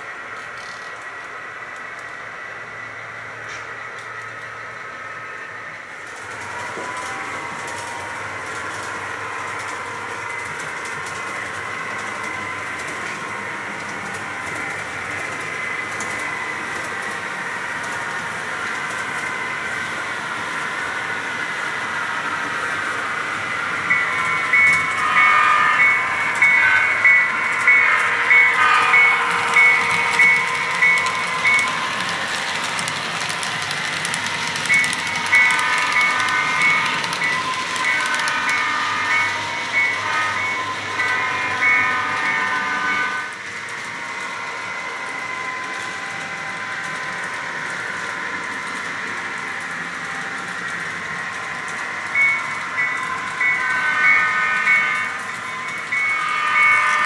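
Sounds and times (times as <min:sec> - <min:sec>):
model train humming and whining: 0:00.0 - 0:57.0
bell ringing: 0:34.7 - 0:43.2.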